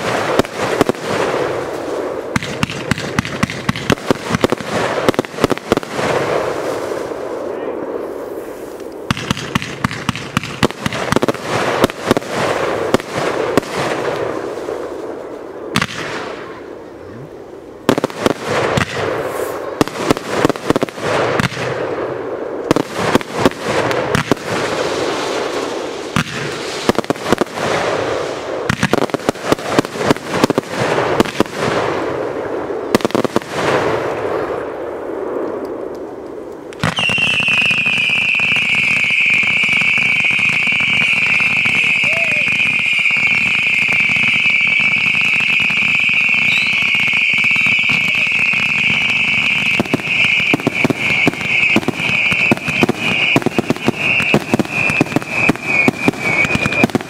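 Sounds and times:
fireworks crackling and popping: 0.0s - 57.0s
firework whistle: 18.0s - 21.8s, 36.8s - 57.0s.

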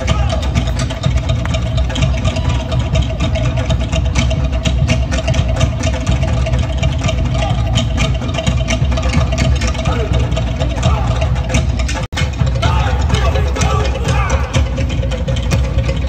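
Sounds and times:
fast drumming: 0.0s - 16.0s.

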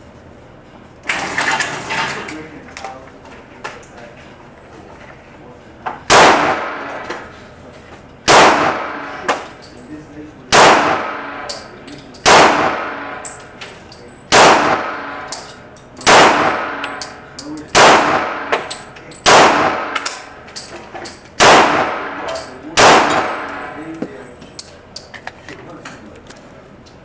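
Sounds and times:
pistol shots echoing: 6.1s - 7.0s, 8.3s - 9.4s, 10.5s - 13.4s, 14.3s - 15.4s, 16.0s - 20.4s, 21.4s - 23.8s.

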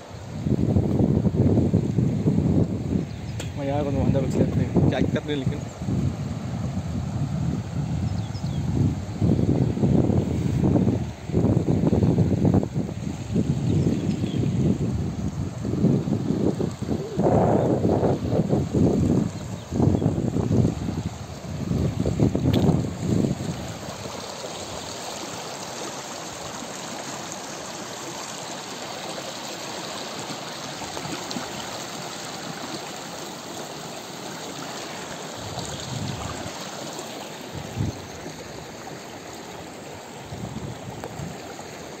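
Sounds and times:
river rushing over rocks: 14.6s - 42.0s.

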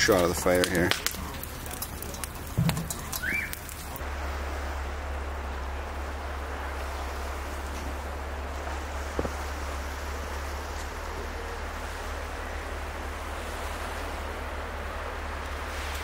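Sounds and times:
burning wood popping: 0.0s - 4.1s, 7.6s - 11.4s
campfire hissing: 0.0s - 16.0s.

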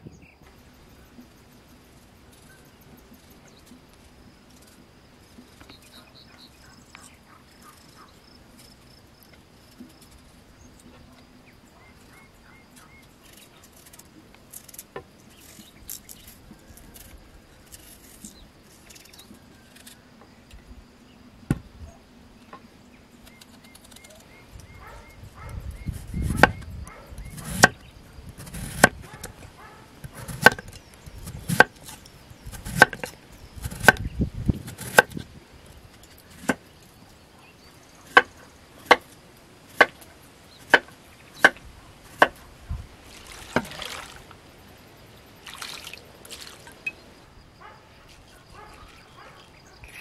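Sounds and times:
bird chirps: 22.9s - 28.0s
knife scraping and cutting potatoes: 25.8s - 35.3s
insect drone: 42.0s - 50.0s.

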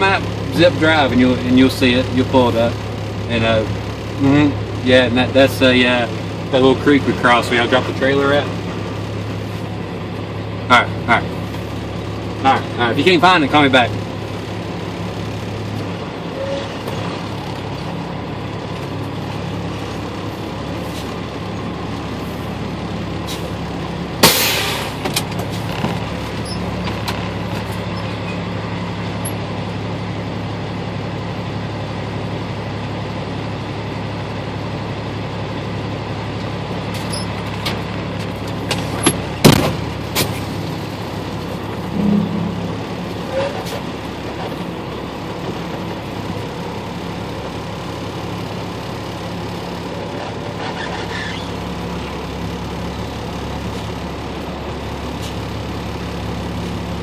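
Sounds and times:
vehicle engine droning: 0.0s - 57.0s
loud clunk: 41.9s - 43.6s.

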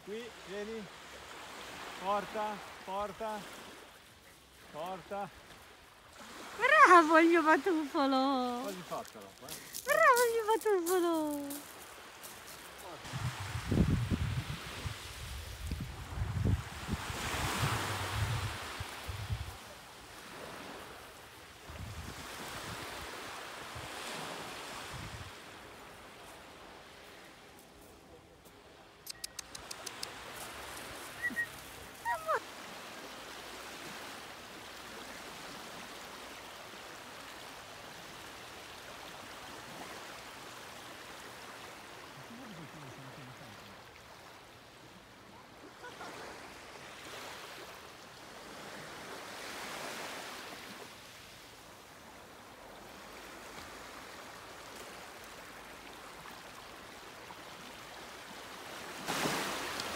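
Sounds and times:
waves lapping on pebble shore: 0.0s - 28.0s, 28.6s - 44.8s, 45.6s - 59.9s
short high chirps: 29.1s - 29.7s.

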